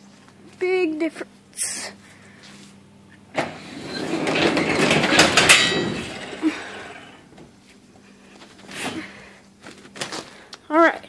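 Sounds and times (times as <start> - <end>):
garage door opener click: 3.3 - 7.3
garage door rushing open: 3.3 - 7.4.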